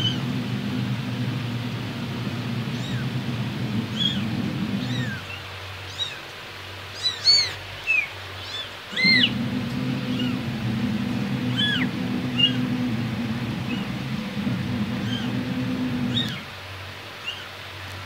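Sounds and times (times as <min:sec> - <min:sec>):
steady low hum: 0:00.0 - 0:05.4, 0:08.9 - 0:16.7.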